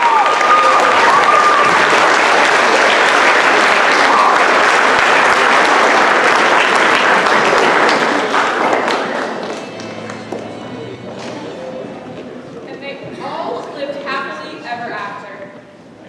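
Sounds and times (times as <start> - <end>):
audience clapping: 0.0 - 11.6.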